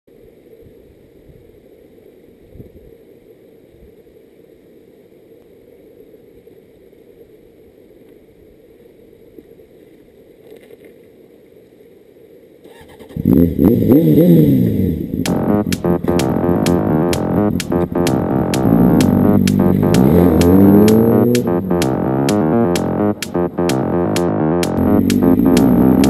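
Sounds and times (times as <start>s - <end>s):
electronic music with keyboards: 15.3s - 26.0s.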